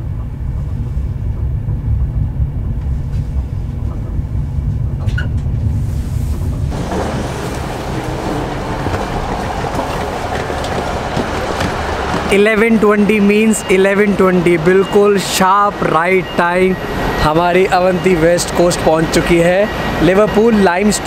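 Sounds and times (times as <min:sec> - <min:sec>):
train rumble: 0:00.0 - 0:21.0
train wheel squeal: 0:06.7 - 0:21.0.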